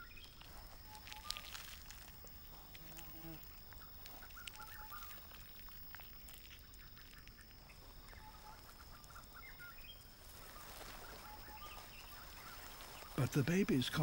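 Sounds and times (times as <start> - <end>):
high insect whine: 0.0 - 14.0
short chirping calls: 3.2 - 14.0.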